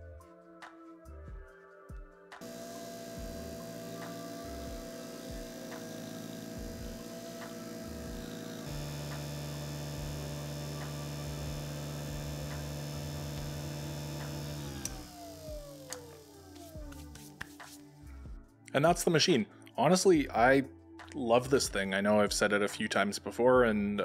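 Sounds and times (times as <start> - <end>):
burnishing machine motor humming: 2.4 - 16.9.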